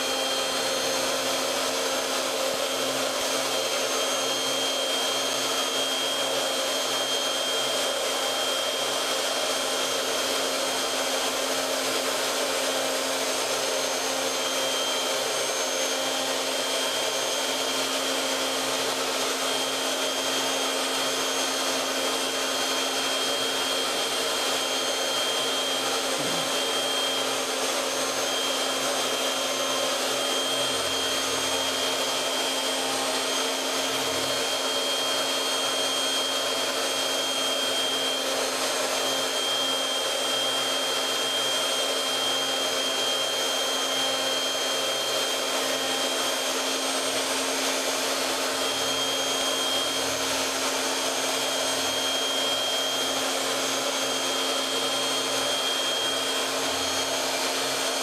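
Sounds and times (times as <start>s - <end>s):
router spindle high whine: 0.0s - 58.0s.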